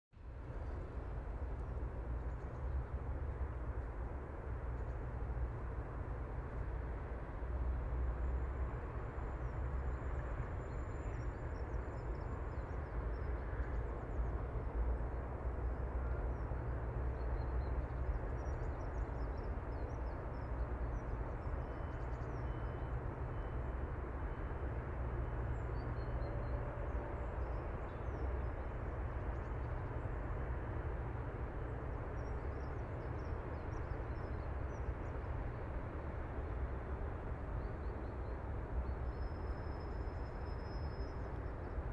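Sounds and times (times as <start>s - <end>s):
low rumble of wind or traffic: 0.1s - 41.9s.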